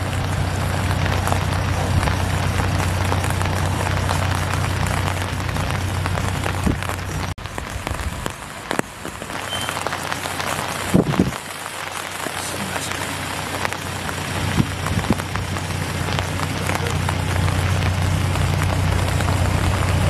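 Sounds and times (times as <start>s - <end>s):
loader engine humming: 0.0s - 20.0s
rain pattering: 0.0s - 20.0s.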